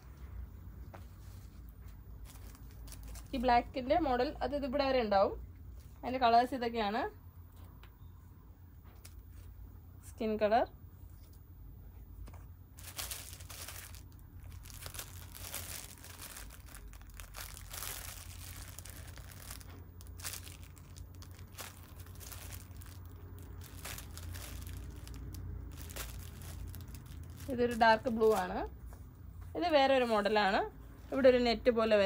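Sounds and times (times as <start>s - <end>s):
plastic packets crinkling: 2.2s - 3.4s, 12.8s - 28.7s.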